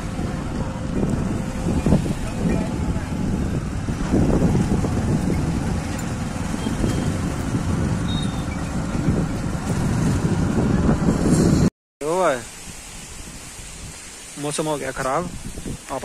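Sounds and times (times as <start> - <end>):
motorcycle running slowly: 0.0 - 10.4
wind rumbling on microphone: 0.0 - 11.7, 12.4 - 16.0.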